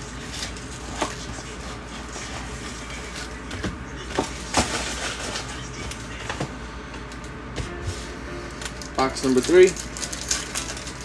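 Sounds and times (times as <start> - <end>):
foil packs crinkling: 4.2 - 6.3, 8.0 - 11.0.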